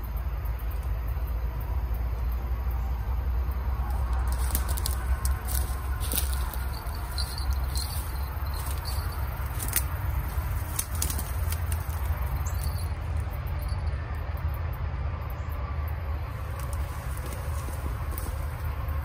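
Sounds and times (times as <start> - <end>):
steady low rumble: 0.0 - 19.0
rustling through reeds and grass: 3.6 - 13.3, 16.2 - 19.0.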